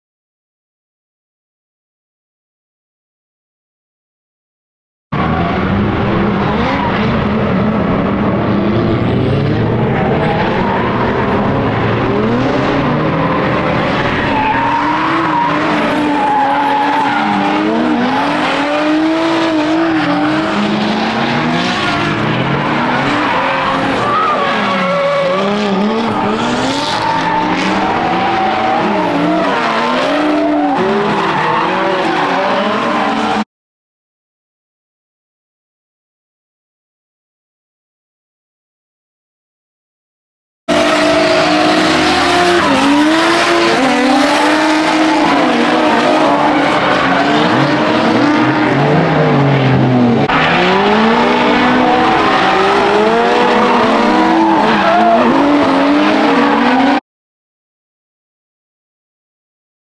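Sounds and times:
car engines revving: 0:05.2 - 0:33.4, 0:40.7 - 0:57.0
tyres skidding: 0:05.2 - 0:33.4, 0:40.7 - 0:57.0.

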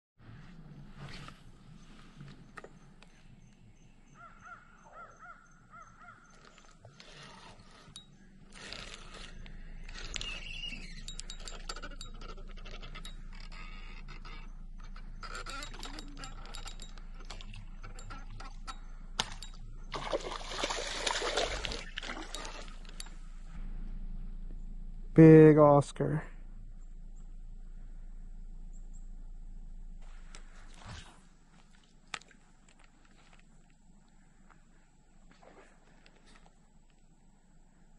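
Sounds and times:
birds calling: 0:02.2 - 0:08.5, 0:09.4 - 0:15.8
fishing reel winding and clicking: 0:07.0 - 0:13.9
fish splashing at surface: 0:19.9 - 0:22.8.

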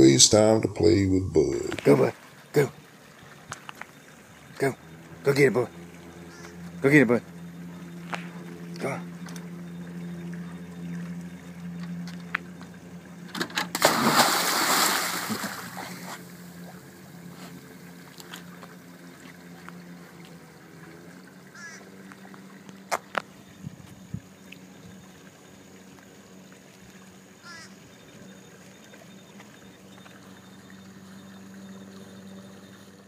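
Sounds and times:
steady low hum: 0:00.0 - 0:33.0
water sloshing and lapping: 0:01.6 - 0:33.0
dog splashing into water: 0:13.7 - 0:16.2.

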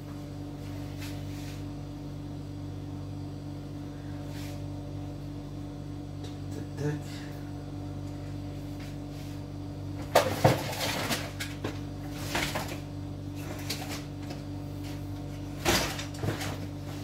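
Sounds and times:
steady low hum: 0:00.0 - 0:17.0
objects knocking and rattling: 0:10.0 - 0:12.8.

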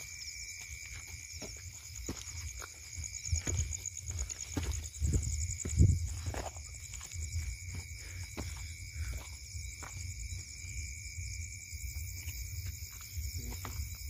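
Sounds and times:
crickets chirping: 0:00.0 - 0:14.0
footsteps on stony ground: 0:00.0 - 0:14.0.

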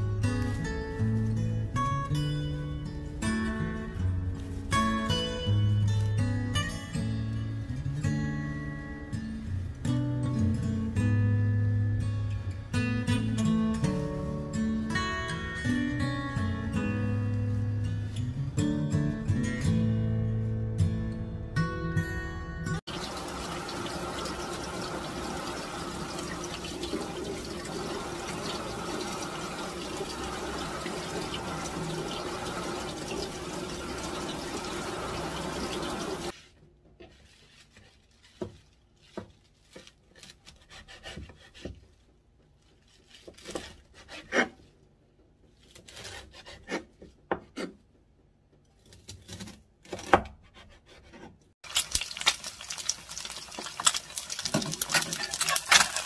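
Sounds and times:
tap water running into sink: 0:22.9 - 0:36.3, 0:51.7 - 0:56.0
knife cutting on wooden board: 0:40.2 - 0:41.8, 0:43.4 - 0:44.6, 0:45.7 - 0:47.8.

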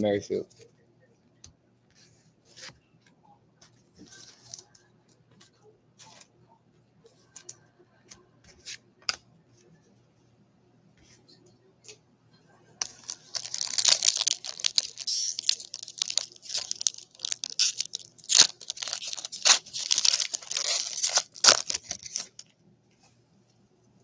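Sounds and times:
foil wrapper tearing and crinkling: 0:12.8 - 0:22.5.

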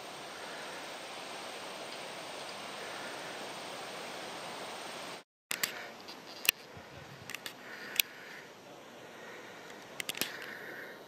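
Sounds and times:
sharp clicks: 0:09.7 - 0:10.6.

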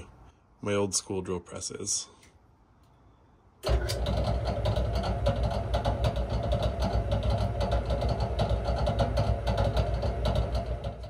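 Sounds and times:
drill press motor hum with rattle: 0:03.6 - 0:11.0.

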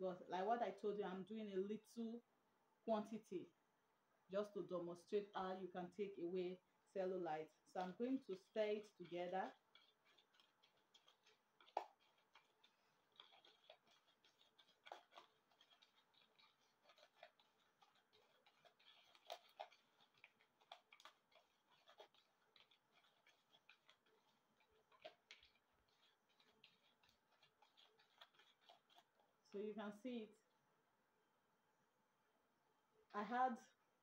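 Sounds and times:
plastic spoon scraping in bowl: 0:07.7 - 0:29.4.

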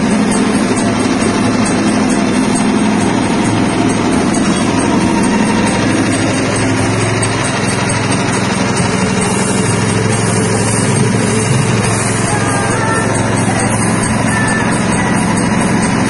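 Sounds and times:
machine motor humming: 0:00.0 - 0:16.0.

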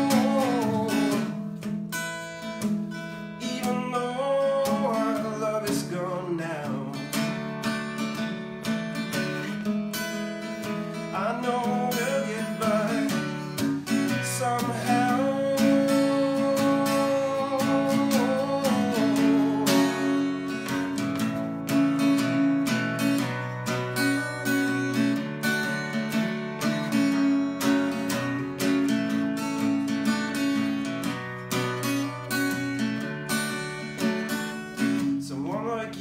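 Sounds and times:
man singing: 0:00.0 - 0:01.4, 0:03.4 - 0:07.3, 0:11.1 - 0:21.0, 0:35.2 - 0:36.0
acoustic guitar strumming chords: 0:00.0 - 0:36.0.

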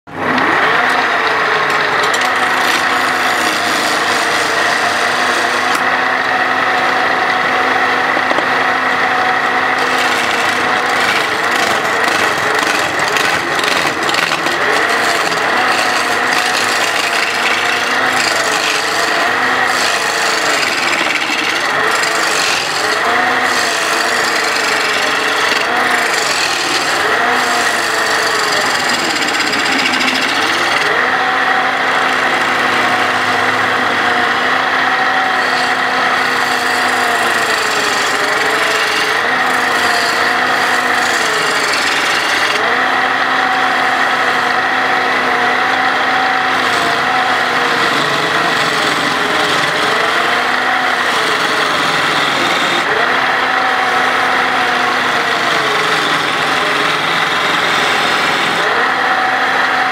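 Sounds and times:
lathe motor hum: 0:00.1 - 0:59.9
turning tool scraping wood: 0:00.2 - 0:05.9, 0:09.4 - 0:34.0, 0:35.2 - 0:42.8, 0:46.6 - 0:53.1.

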